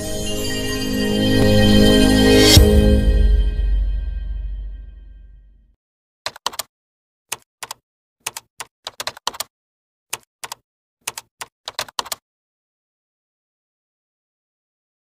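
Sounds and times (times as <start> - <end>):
keyboard keystroke clicks: 6.3 - 6.7, 7.3 - 9.5, 10.1 - 12.2.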